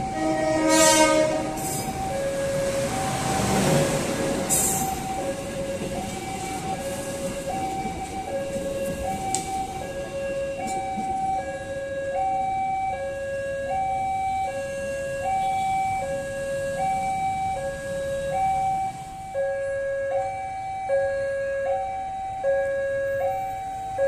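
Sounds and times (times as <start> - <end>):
level crossing two-tone alarm: 0.0 - 3.6, 4.7 - 24.0
passing train rumble: 0.0 - 24.0.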